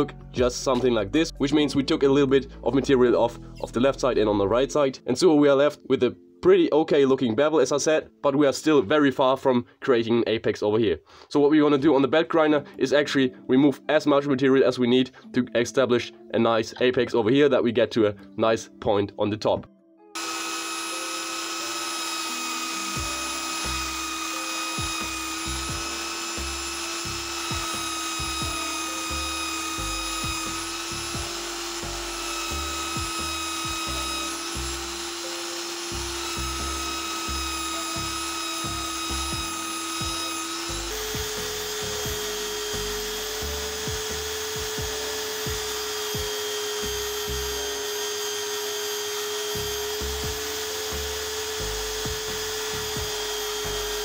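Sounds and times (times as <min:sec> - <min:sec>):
belt sander grinding steel: 0:20.2 - 0:54.0.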